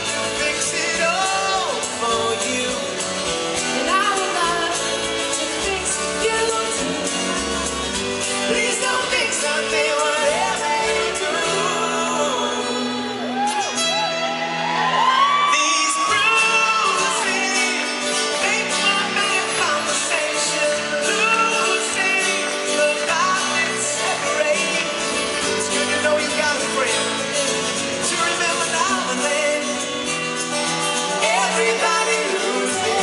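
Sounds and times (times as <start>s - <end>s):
man singing lead: 0.0s - 13.7s, 15.1s - 33.0s
drums: 0.0s - 14.1s
acoustic guitar: 0.0s - 33.0s
bass guitar: 0.0s - 33.0s
woman singing: 3.8s - 7.5s, 8.5s - 13.2s, 31.1s - 33.0s.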